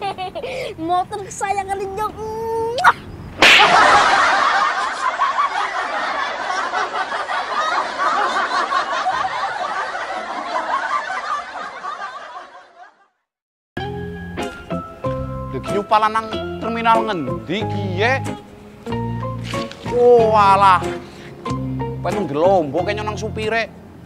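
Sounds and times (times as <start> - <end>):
laughter: 0.0 - 0.5, 3.6 - 13.2.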